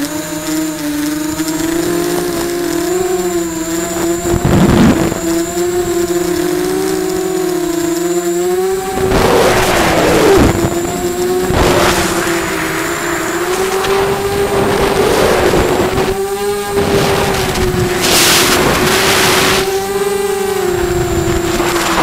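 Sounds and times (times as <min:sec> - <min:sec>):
drone motors and propellers whining: 0:00.0 - 0:22.0
rushing air noise: 0:08.7 - 0:22.0.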